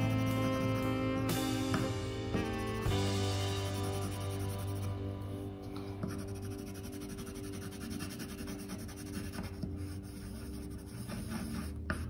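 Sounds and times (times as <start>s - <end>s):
pencil scratching on paper: 0.0s - 0.8s, 3.6s - 5.0s, 5.9s - 12.0s.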